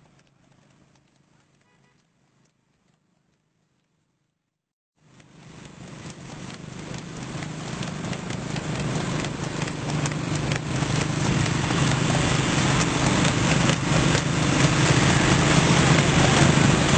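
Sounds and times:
horse hoofbeats: 5.0 - 16.9
motorcycle engine running: 5.0 - 16.9.

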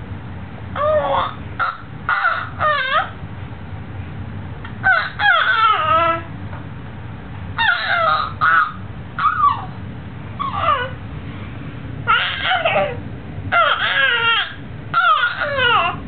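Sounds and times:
baby squealing: 0.8 - 3.2, 4.8 - 6.3, 7.6 - 9.8, 10.4 - 11.0, 12.1 - 16.0.

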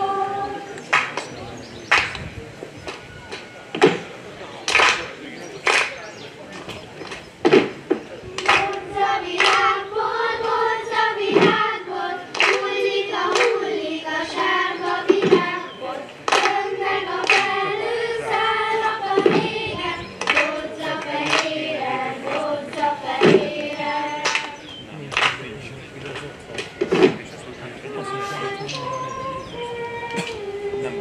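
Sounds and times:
children singing in unison: 0.0 - 1.2, 8.4 - 24.8, 26.8 - 31.0
sharp hand claps: 0.8 - 4.0, 4.6 - 6.0, 8.4 - 8.8, 9.4 - 9.8, 12.3 - 12.7, 13.3 - 13.6, 16.2 - 17.6, 20.2 - 21.6, 24.2 - 25.5.

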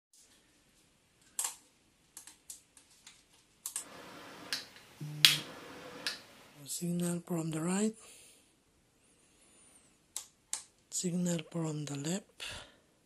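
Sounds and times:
faint steady hiss: 3.0 - 10.2.

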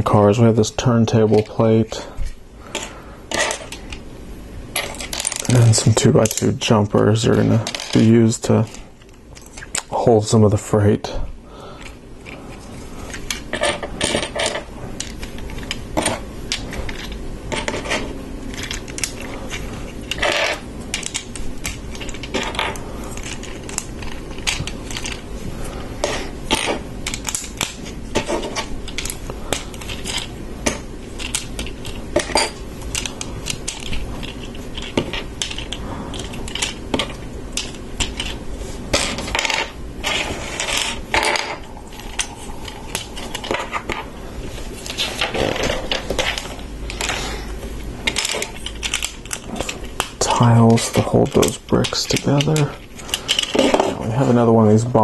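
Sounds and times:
plastic bricks clicking and clattering: 13.1 - 25.2, 26.0 - 44.0.

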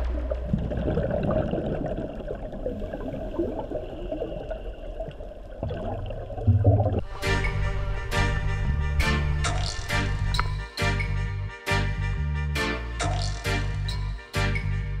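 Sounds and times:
underwater bubbling and gurgling: 0.0 - 7.2.

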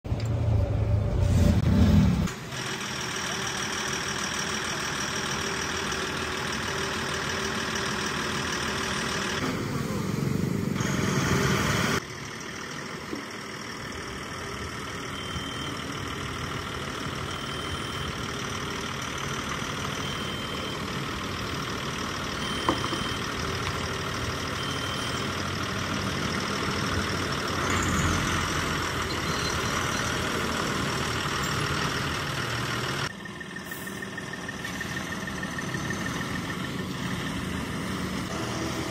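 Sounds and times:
heavy diesel engine running: 0.1 - 38.9
faint short beeps: 15.1 - 15.9, 17.3 - 18.2, 22.4 - 23.4.

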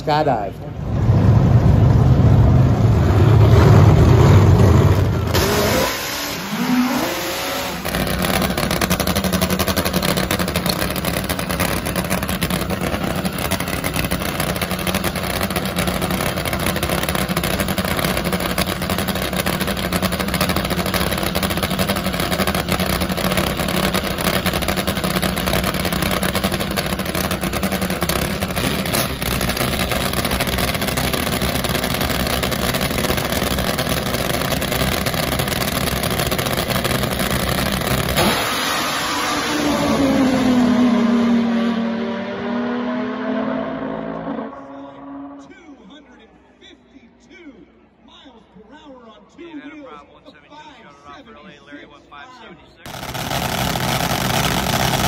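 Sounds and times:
heavy low engine roar: 0.6 - 43.3, 52.9 - 55.0
rough engine idle: 7.8 - 38.2, 52.9 - 55.0.

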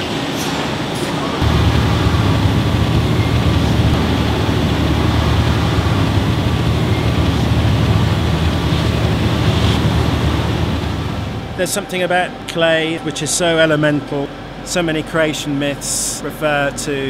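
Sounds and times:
clay mixer rumbling: 1.4 - 11.8.

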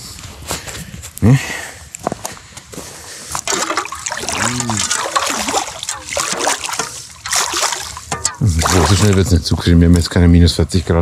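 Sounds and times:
water splashing: 3.3 - 9.4
shovel chopping ice and water: 3.4 - 9.3.

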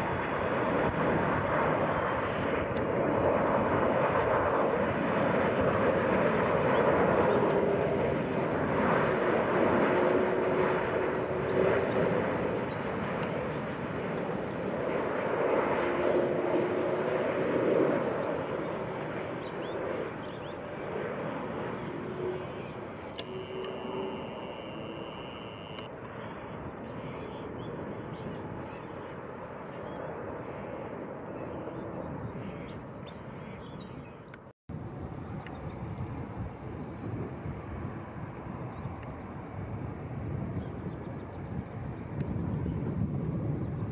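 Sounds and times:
airliner jet noise rushing: 19.2 - 26.1.

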